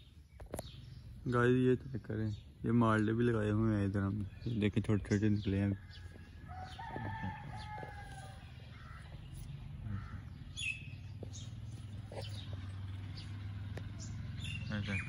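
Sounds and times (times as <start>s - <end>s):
small birds chirping: 0.0s - 15.0s
rooster crowing: 5.7s - 9.1s.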